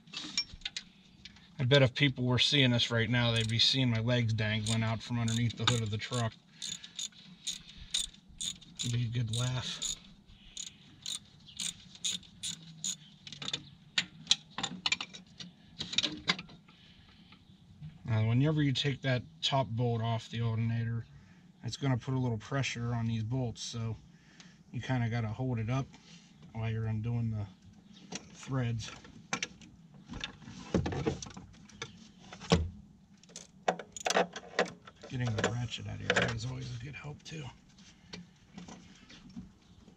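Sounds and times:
metal tools clinking: 3.3 - 3.6, 4.6 - 10.0, 10.6 - 13.0
ratchet wrench clicking: 3.3 - 3.6, 4.6 - 10.0, 10.6 - 13.0.

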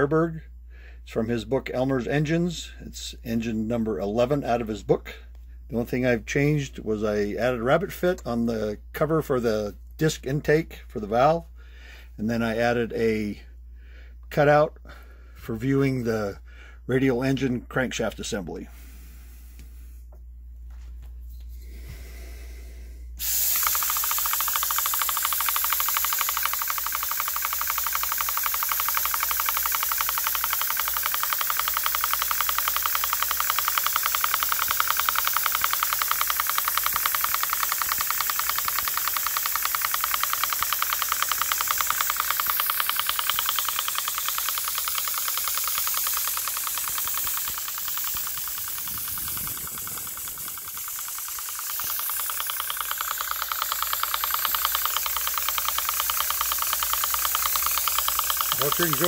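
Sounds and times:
model steam engine running: 23.2 - 59.0.

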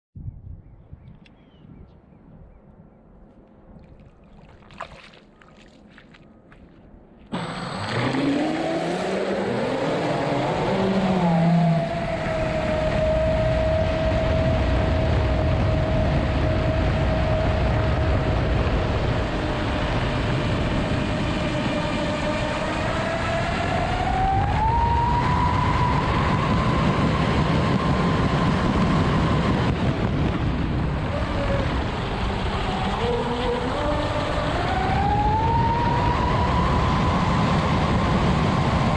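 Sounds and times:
water rushing against hull: 3.7 - 38.9
electric motors whining: 7.3 - 18.6, 19.4 - 38.9.

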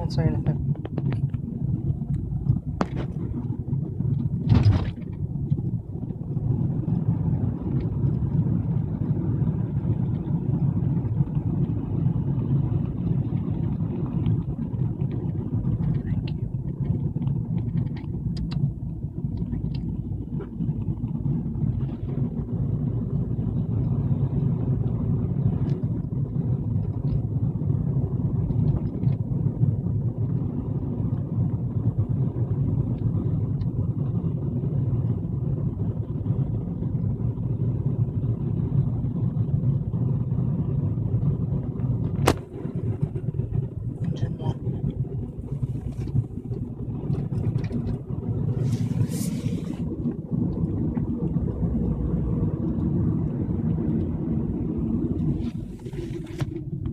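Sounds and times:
vehicle engine and tyres rumble: 0.0 - 56.9.

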